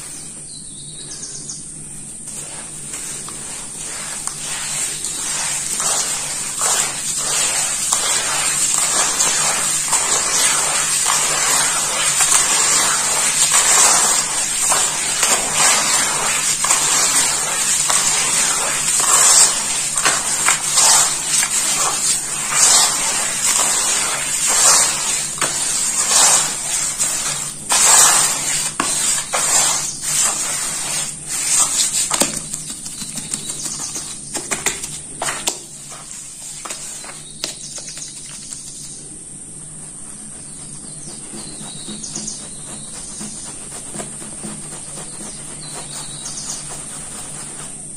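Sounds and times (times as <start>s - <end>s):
steady high hiss: 0.0s - 47.9s
hands squelching wet mud: 3.2s - 35.6s.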